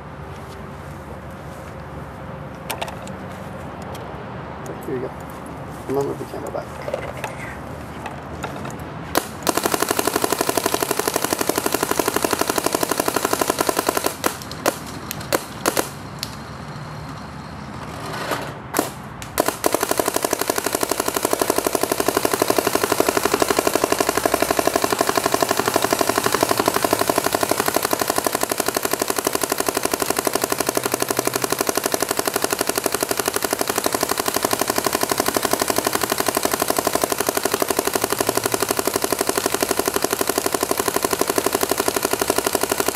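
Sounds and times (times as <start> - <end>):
paintball marker rapid fire: 9.1 - 16.0, 18.8 - 42.9.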